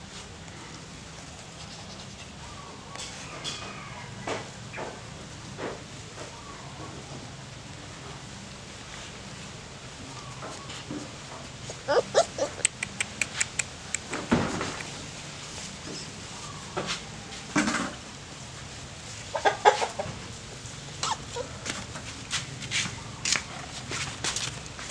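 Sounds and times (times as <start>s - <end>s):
short animal calls: 11.7s - 13.6s.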